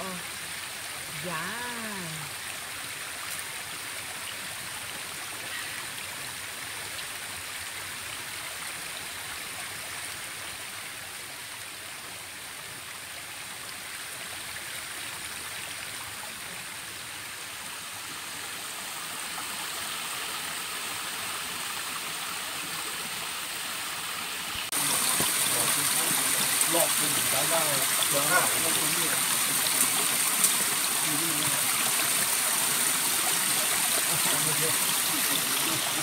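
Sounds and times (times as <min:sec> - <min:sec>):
stream trickling over rocks: 0:00.0 - 0:36.0.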